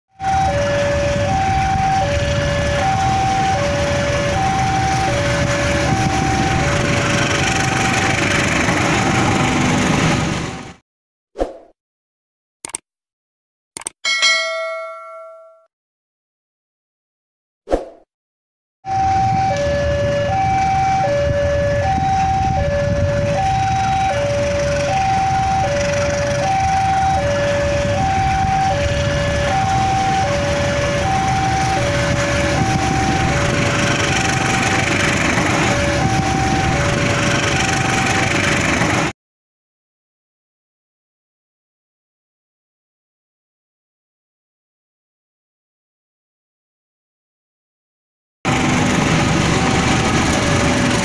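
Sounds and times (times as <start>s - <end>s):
level crossing alarm two tones: 0.2s - 6.8s, 26.4s - 34.9s
diesel train rumble: 0.2s - 10.8s, 18.9s - 39.1s, 48.5s - 51.0s.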